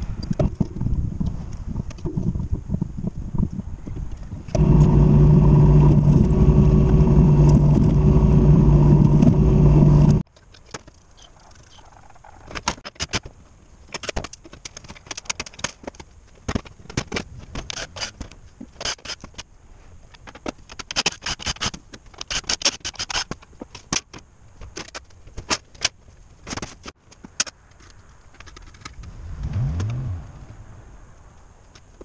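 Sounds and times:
motor running loudly: 4.6 - 10.2.

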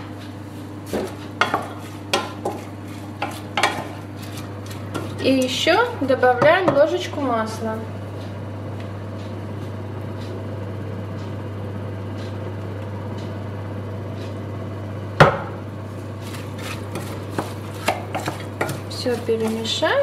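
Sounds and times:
wooden spoon knocking pot rim: 17.4 - 19.7.

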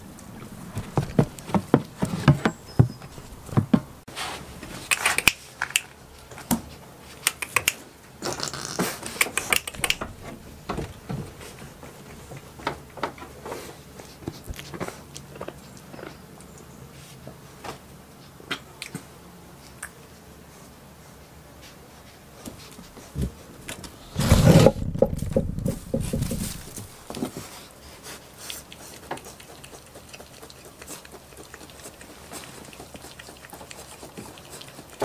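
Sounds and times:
goats nibbling clicks and knocks: 4.8 - 16.7, 25.0 - 35.0
scraping rustle: 21.6 - 28.2.

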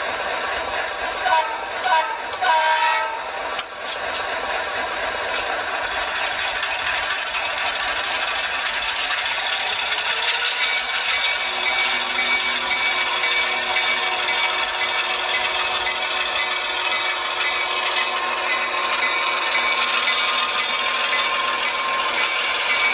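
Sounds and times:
model diesel engine clatter: 3.5 - 11.4.

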